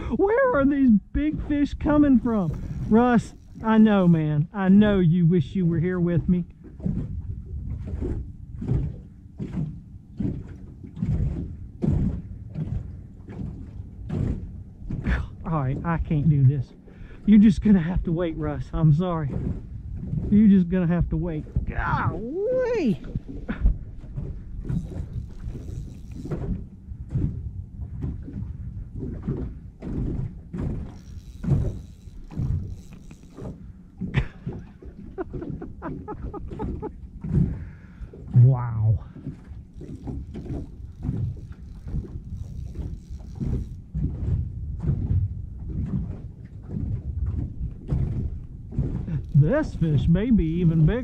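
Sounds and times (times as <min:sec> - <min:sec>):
knocks and thumps in a boat: 0:00.0 - 0:51.0
low rumble: 0:33.6 - 0:45.7.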